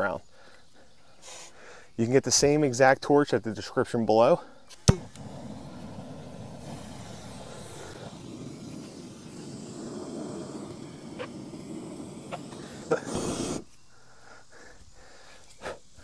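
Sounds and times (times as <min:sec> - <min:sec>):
torch flame burning: 0:04.7 - 0:13.7.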